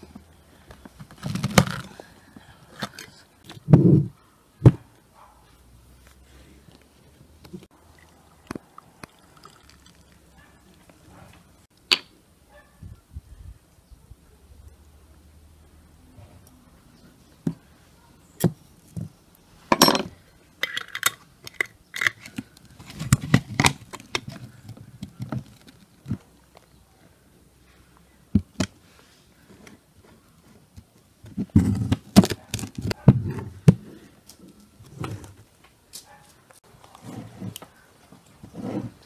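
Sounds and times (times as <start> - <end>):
glass jar clinking and knocking: 19.7 - 21.2.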